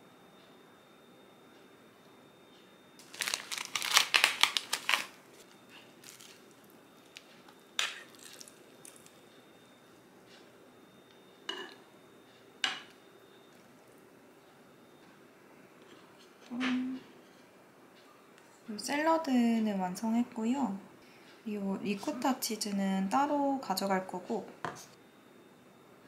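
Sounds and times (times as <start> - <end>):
plastic film crinkling: 3.0 - 9.2.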